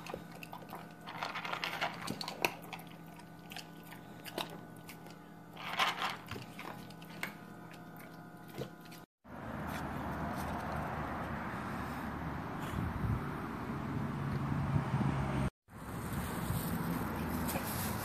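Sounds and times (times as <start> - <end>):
puppy crunching dry food: 0.0 - 9.0.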